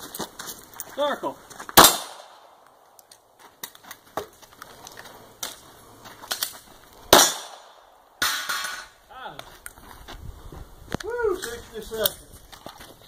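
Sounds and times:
handgun shot: 0:01.8 - 0:02.6, 0:07.1 - 0:08.7.

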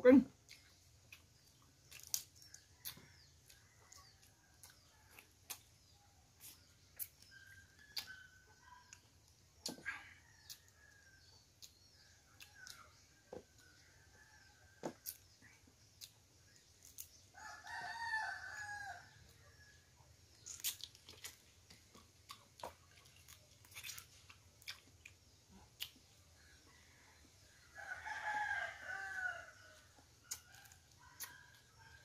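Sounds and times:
chewing: 0:00.4 - 0:17.2, 0:20.3 - 0:27.6, 0:29.6 - 0:32.0
rooster crowing: 0:17.4 - 0:19.3, 0:27.7 - 0:30.0.

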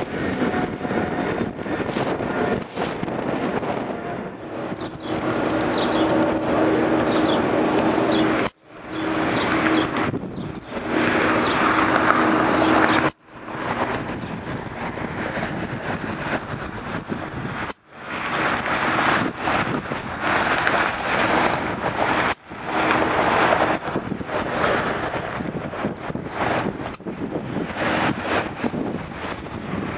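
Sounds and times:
distant jet engines rushing: 0:00.0 - 0:29.9.

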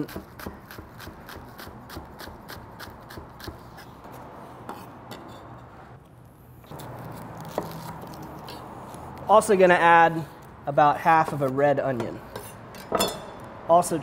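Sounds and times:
knife chopping on wooden board: 0:00.0 - 0:03.8
knife scraping board: 0:00.0 - 0:05.6, 0:06.6 - 0:09.0.

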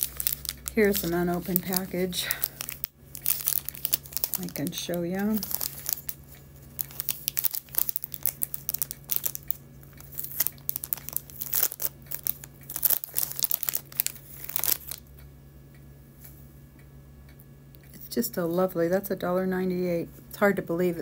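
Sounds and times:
crinkly packaging being torn open: 0:00.0 - 0:15.1.

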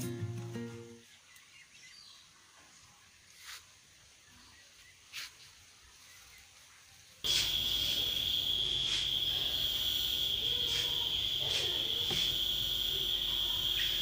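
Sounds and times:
cricket trill: 0:07.2 - 0:14.0.

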